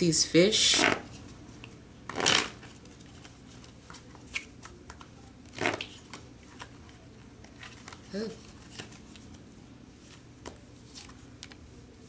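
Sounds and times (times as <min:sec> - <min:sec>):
cards brushing: 0:00.7 - 0:09.4
cards rustling on cloth table: 0:01.0 - 0:09.4, 0:10.0 - 0:11.6.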